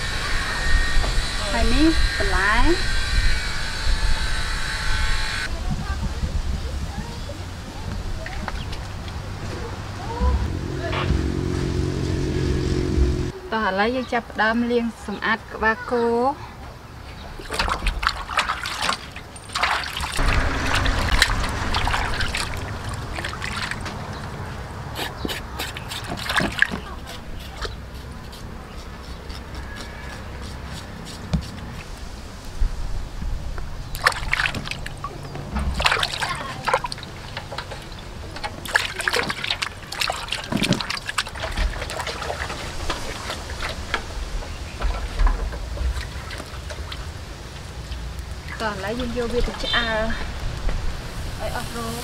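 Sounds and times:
water splashing in metal pot: 17.4 - 24.2, 35.7 - 43.9
hands scrubbing: 24.9 - 31.9.

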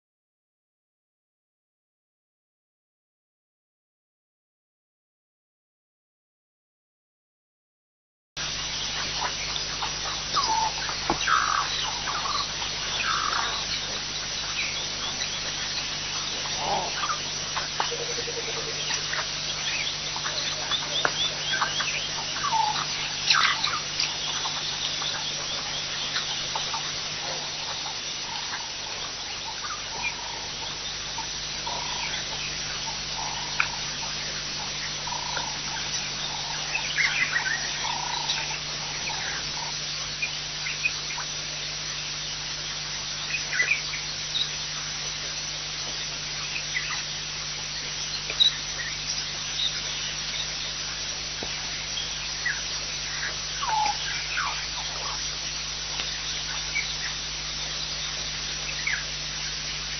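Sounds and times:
steady low hum: 8.4 - 59.9
birds chirping and whistling: 9.8 - 28.4.

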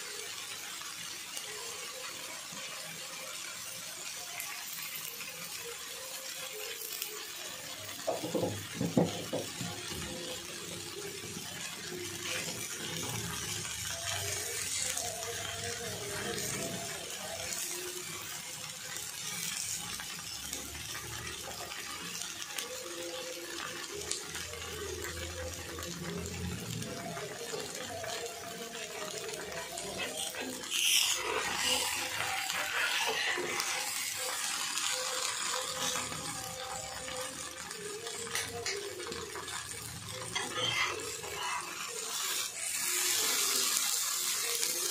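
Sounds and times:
batter sizzling on hot iron: 0.0 - 44.9
metal spatula scraping: 29.4 - 36.1, 40.2 - 43.5.

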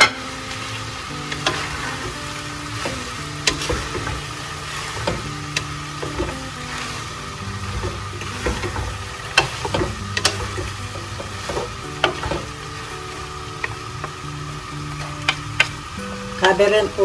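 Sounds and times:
vegetables sizzling in a pot: 0.0 - 17.0
spatulas scraping: 1.3 - 2.2
wood knocking against pot: 7.8 - 12.5.

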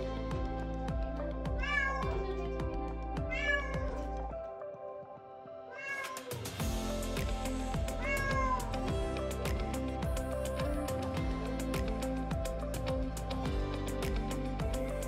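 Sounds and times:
background music with steady beat: 0.0 - 15.0
cat meowing: 5.7 - 6.3, 8.0 - 8.7.

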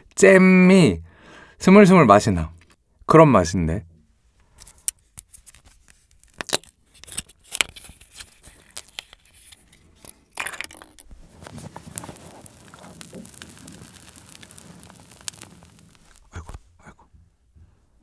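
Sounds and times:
plastic wrapper crackling: 5.3 - 16.6.

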